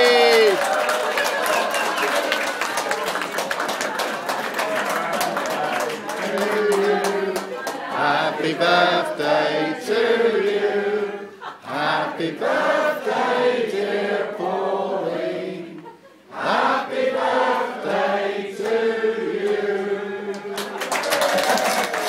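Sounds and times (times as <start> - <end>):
people singing in chorus: 5.0 - 20.7.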